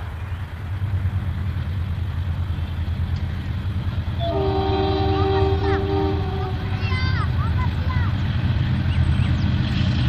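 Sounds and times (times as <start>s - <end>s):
locomotive air horn chord: 4.2s - 6.7s.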